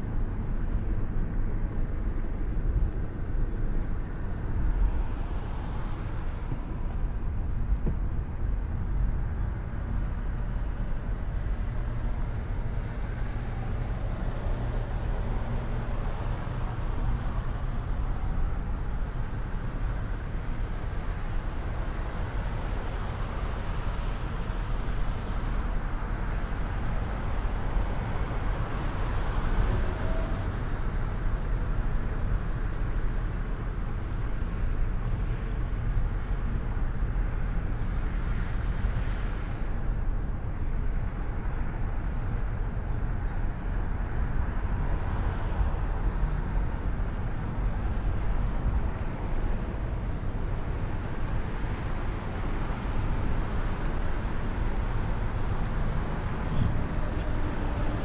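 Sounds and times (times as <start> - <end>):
car engine and tyre noise: 0.0 - 58.0
street traffic: 0.0 - 58.0.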